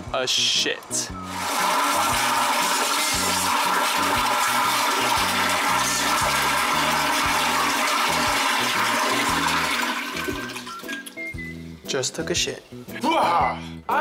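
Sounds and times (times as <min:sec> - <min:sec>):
toilet flushing: 0:01.2 - 0:11.4.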